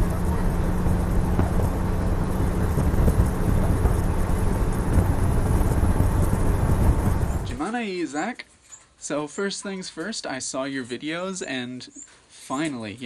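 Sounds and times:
vehicle engine and road rumble: 0.0s - 7.7s
wind rushing past: 0.0s - 7.7s.

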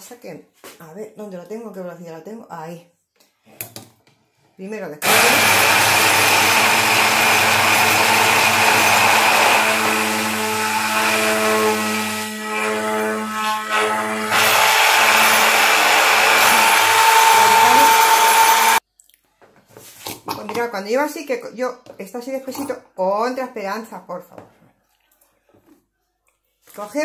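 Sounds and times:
stick blender running in jug: 5.0s - 18.8s.

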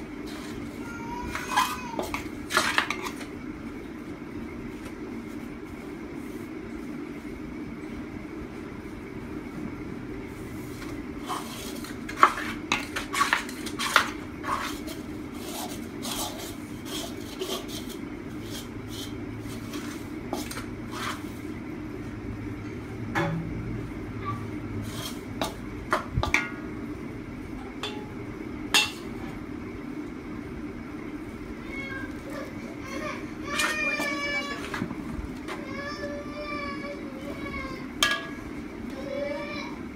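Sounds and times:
steady low hum: 0.0s - 39.9s
clinks and scrapes in metal bowl: 1.5s - 3.2s, 11.2s - 21.2s.

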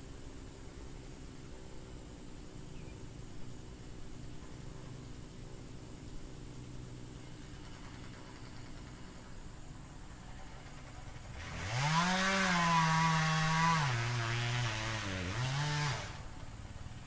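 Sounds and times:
chainsaw revving: 10.8s - 16.3s.

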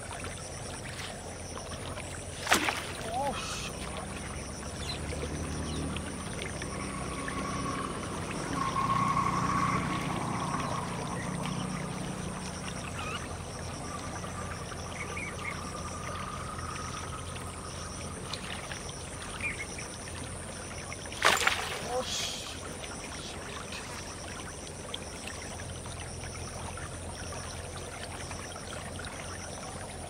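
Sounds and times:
frogs trilling: 0.0s - 30.0s
shallow water running: 0.0s - 30.0s
low hum: 3.5s - 21.7s.

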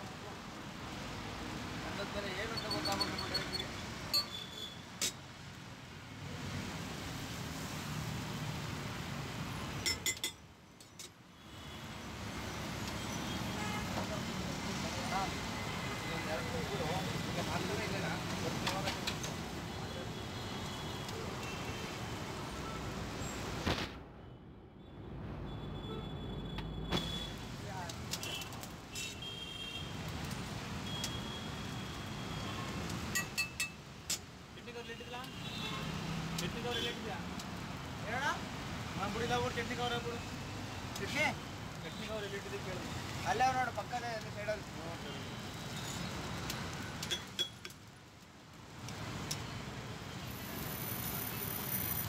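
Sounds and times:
traffic: 0.0s - 52.0s
metal utensil clinking on griddle: 9.8s - 11.2s, 33.1s - 33.8s, 47.0s - 47.8s.

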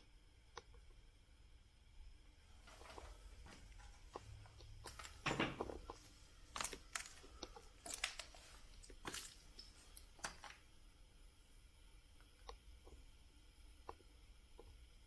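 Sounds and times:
footsteps crunching over debris: 2.6s - 10.6s.

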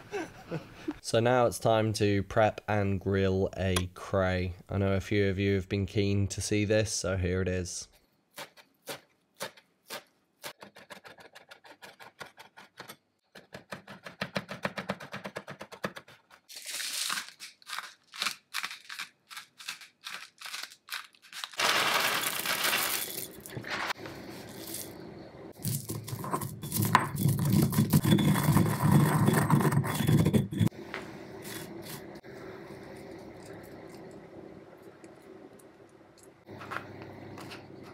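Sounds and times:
pestle grinding peppercorns: 15.9s - 25.0s, 25.6s - 30.8s
salt scraping and sprinkling: 16.5s - 25.0s, 25.6s - 30.7s, 31.4s - 34.2s.

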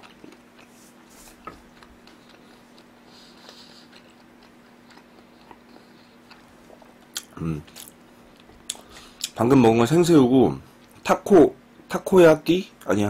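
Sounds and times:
soft chewing with mouth clicks: 0.0s - 9.4s
steady low hum: 0.0s - 13.0s.

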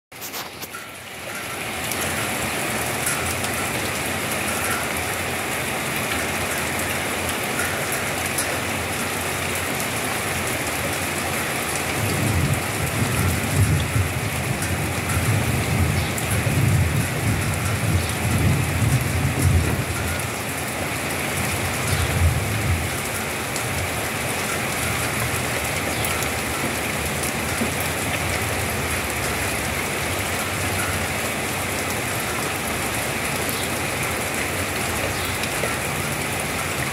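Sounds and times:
steady rain falling: 0.1s - 36.9s
distant thunder rumble: 12.0s - 20.2s.

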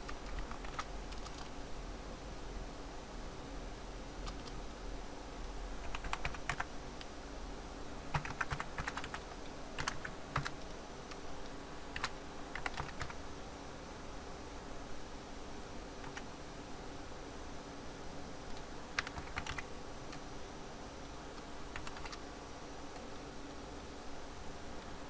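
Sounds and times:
computer keyboard typing: 0.0s - 1.5s, 4.2s - 4.6s, 5.8s - 6.7s, 8.1s - 10.7s, 11.9s - 13.2s, 16.0s - 16.3s, 18.5s - 20.2s, 21.7s - 22.3s.

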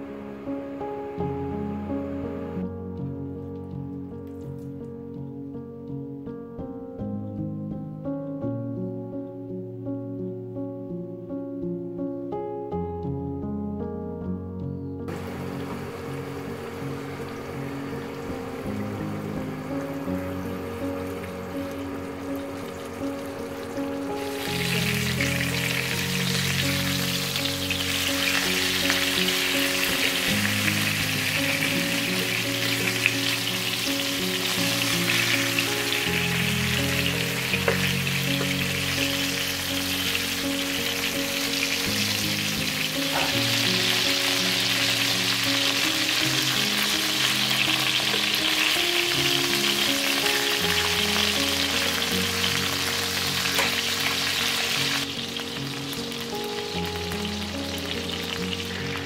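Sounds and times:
soft background music: 0.0s - 59.0s
chicken frying in oil: 15.1s - 59.0s.

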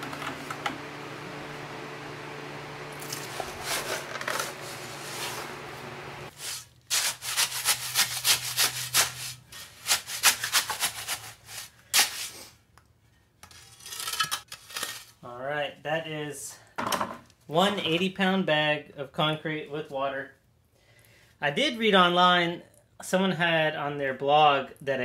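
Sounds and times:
electric fan humming: 0.0s - 12.1s
shovel scraping wet concrete: 3.0s - 5.6s, 6.3s - 12.5s.

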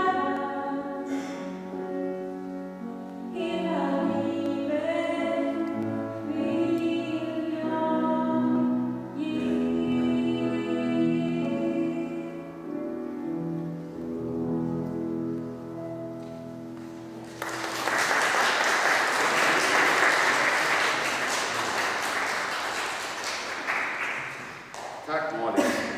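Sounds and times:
audience applause: 17.2s - 25.0s.

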